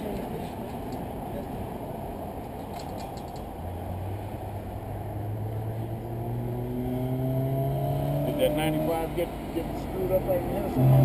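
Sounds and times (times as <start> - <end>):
low background rush: 0.0 - 11.0
distant car engine accelerating: 3.8 - 11.0.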